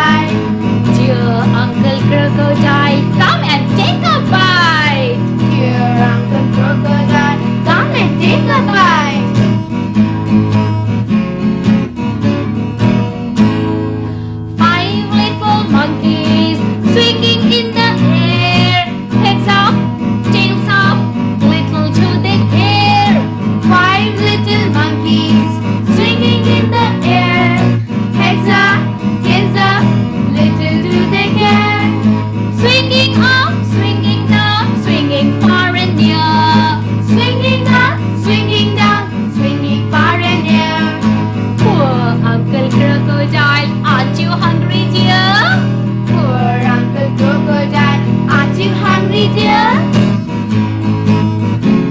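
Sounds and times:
strummed guitar: 0.0 - 51.9
children singing together: 5.4 - 9.4, 14.6 - 45.5, 46.1 - 50.0.

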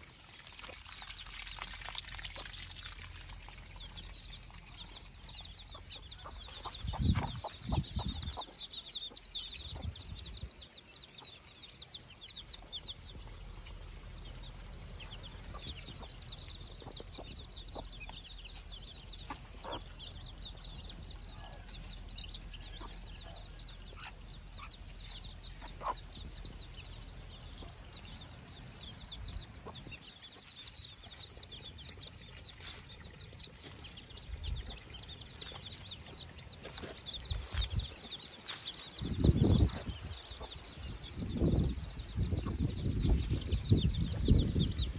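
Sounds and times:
chicks peeping: 2.2 - 44.9
hen clucking: 4.9 - 10.0, 15.0 - 20.4, 25.4 - 26.8.

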